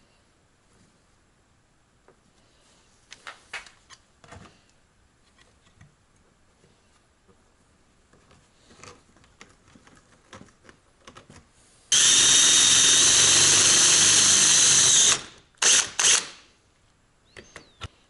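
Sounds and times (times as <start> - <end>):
cordless drill boring metal: 11.9 - 16.4.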